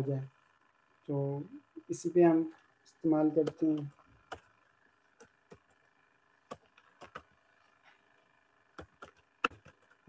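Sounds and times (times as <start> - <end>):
keyboard keystrokes: 6.5 - 7.2, 8.8 - 9.9.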